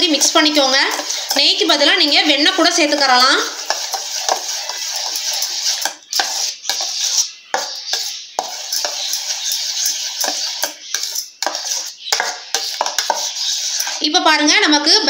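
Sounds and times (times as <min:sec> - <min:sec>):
spoon clinking on steel bowl: 0:00.0 - 0:14.0
spoon scraping wet batter: 0:00.0 - 0:14.3.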